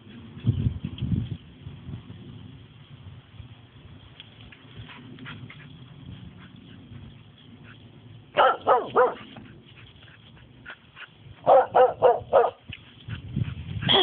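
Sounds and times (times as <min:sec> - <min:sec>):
dog barking: 0:08.3 - 0:09.4, 0:11.4 - 0:12.6.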